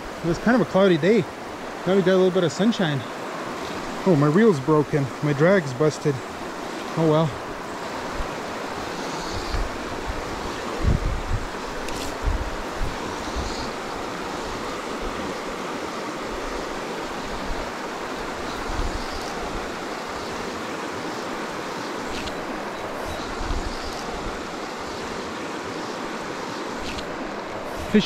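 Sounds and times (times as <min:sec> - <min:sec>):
creek rushing over stones: 0:00.0 - 0:28.0
wind rumble on microphone: 0:07.4 - 0:20.8, 0:21.6 - 0:25.2, 0:26.8 - 0:28.0.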